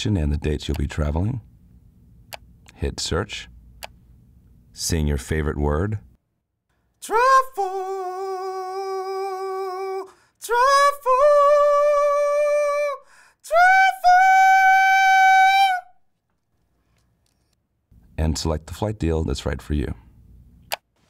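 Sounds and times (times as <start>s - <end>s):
man singing a capella: 7.0s - 15.9s.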